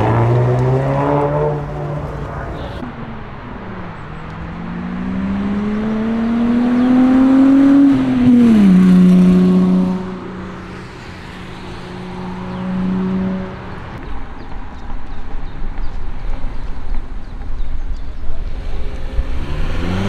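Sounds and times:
car engine accelerating: 0.0s - 14.0s, 18.4s - 20.0s.

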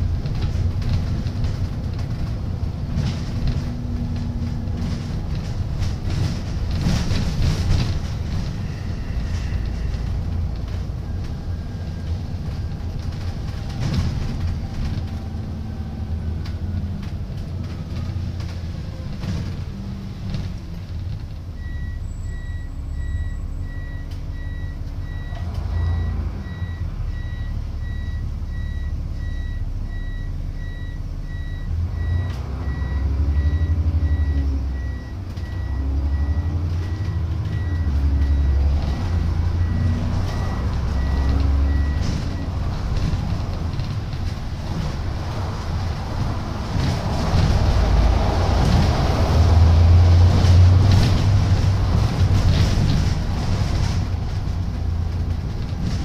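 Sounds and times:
bus diesel engine running: 0.0s - 56.0s
reversing alarm beeping: 21.6s - 42.6s.

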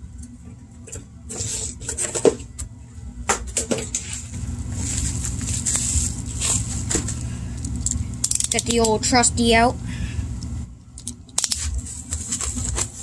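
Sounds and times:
bubble wrap crinkling: 4.0s - 8.8s, 11.4s - 13.0s.

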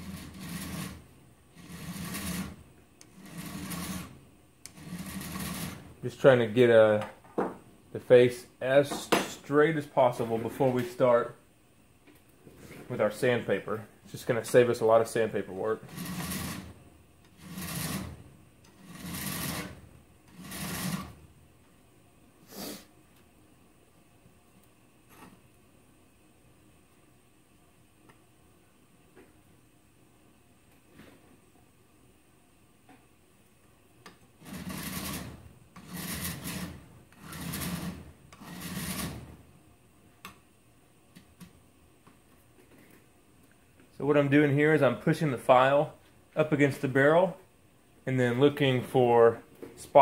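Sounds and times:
file scraping steel: 0.0s - 5.9s, 15.8s - 21.2s, 34.4s - 39.3s.

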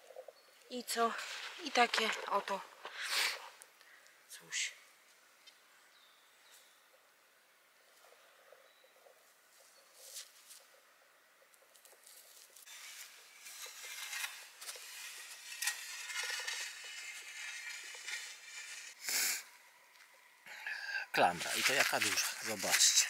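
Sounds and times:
scraping in soil and leaf litter: 12.0s - 19.5s, 21.3s - 23.0s.

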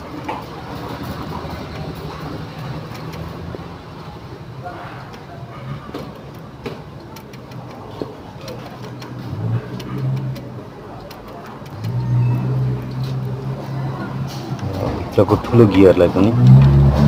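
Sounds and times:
plastic clicks and taps: 5.9s - 12.0s.

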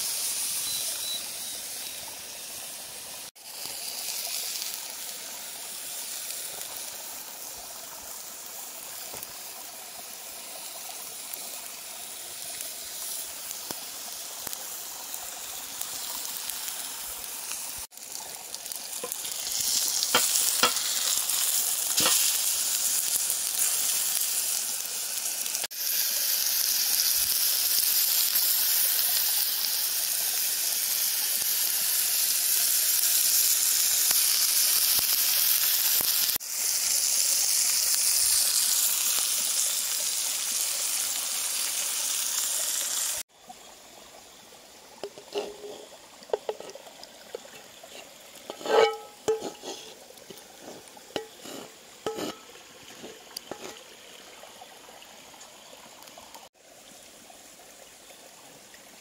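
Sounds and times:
steak sizzling on grill pan: 0.0s - 5.1s, 10.2s - 43.2s, 45.0s - 46.8s, 47.8s - 53.8s.

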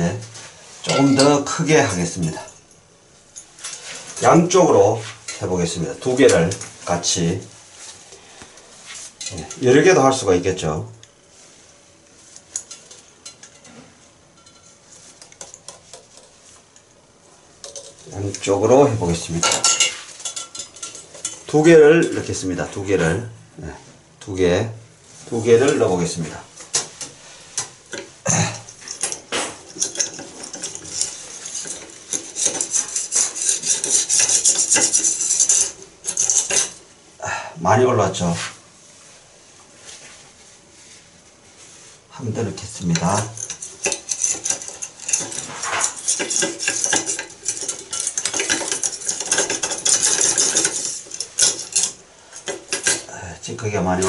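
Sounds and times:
wire hooks scraping metal drain: 0.8s - 2.5s, 17.6s - 22.4s, 26.8s - 36.8s, 42.6s - 54.0s
fast scratching at clog: 30.2s - 36.6s.

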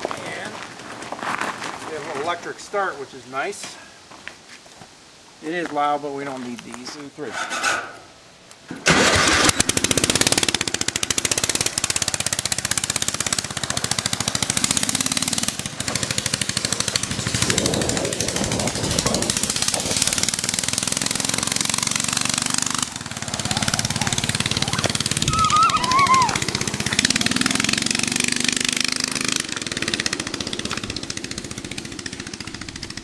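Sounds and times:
go-kart engine running loudly: 8.9s - 33.0s.

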